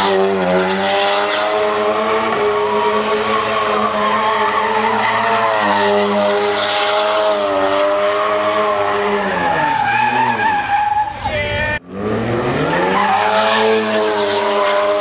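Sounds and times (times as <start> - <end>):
tyres squealing and skidding: 0.0 - 15.0
car engine revving high: 11.8 - 15.0.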